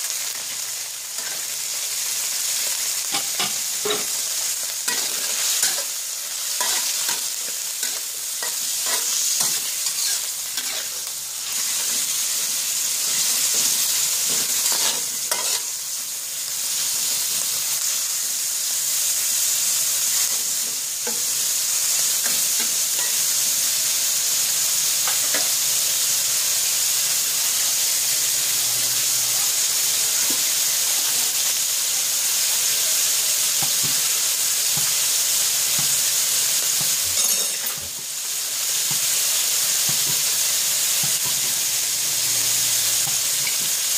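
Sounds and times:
meat sizzling in hot oil: 0.0 - 43.9
metal spatula scraping a pan: 1.2 - 1.5, 3.1 - 4.3, 4.9 - 12.2, 13.0 - 15.8.

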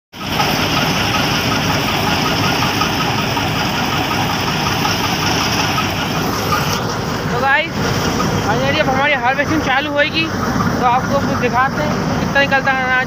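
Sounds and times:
combine harvester droning: 0.2 - 13.0
fast regular ticking: 0.2 - 13.0.

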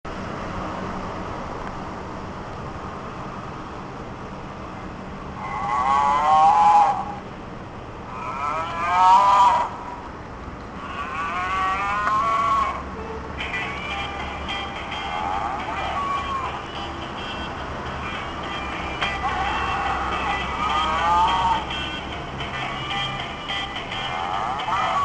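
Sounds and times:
electronic moo calls: 5.4 - 7.2, 8.1 - 10.0, 10.8 - 25.0
toy motor whirring: 18.1 - 22.0.

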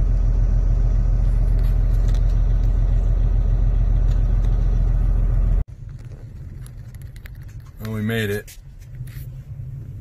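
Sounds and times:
diesel truck engine idling: 0.0 - 5.7.

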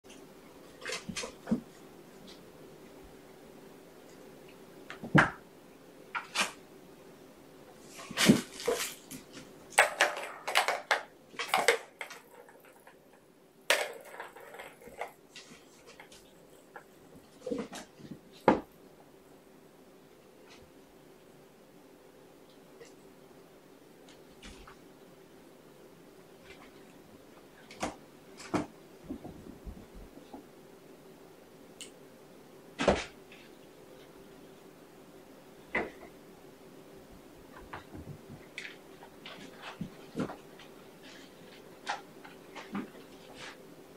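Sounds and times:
faint room hum: 0.1 - 43.9
kittens playing with toys: 7.8 - 18.5
kittens knocking and scraping: 27.8 - 30.5.

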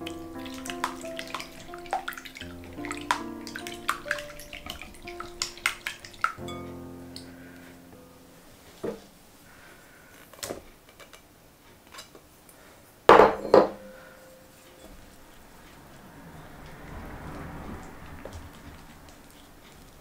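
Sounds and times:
dish knock with ringing tone: 13.1 - 14.1.

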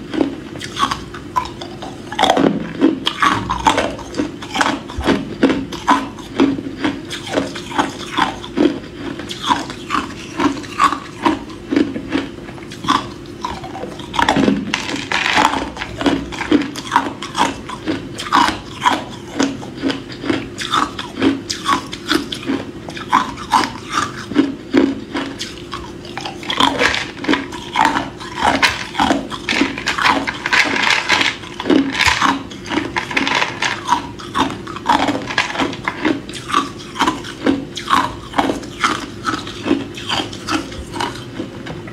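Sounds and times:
ice cubes being chewed: 0.0 - 41.5.

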